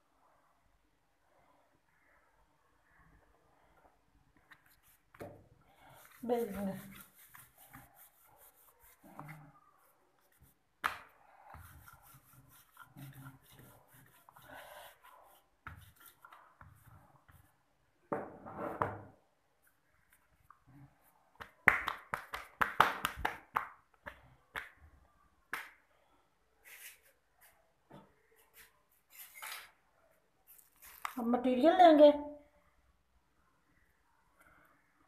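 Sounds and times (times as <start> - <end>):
hands rubbing dough: 4.3 - 17.8, 19.6 - 25.9, 30.4 - 31.4
rolling pin rolling dough: 4.7 - 19.1.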